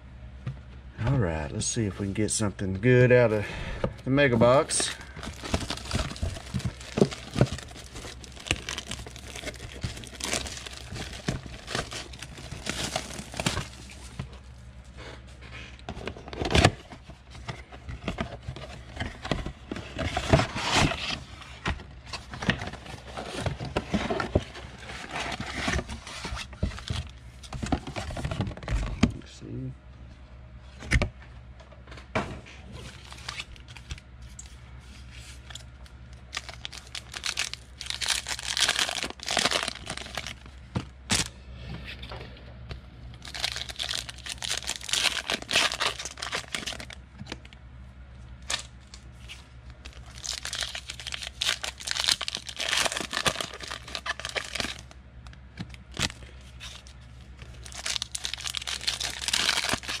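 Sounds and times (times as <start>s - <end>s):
foil wrappers torn and crinkled: 4.5s - 14.4s, 32.8s - 34.0s, 35.4s - 41.3s, 43.2s - 47.4s, 48.4s - 55.0s, 55.7s - 60.0s.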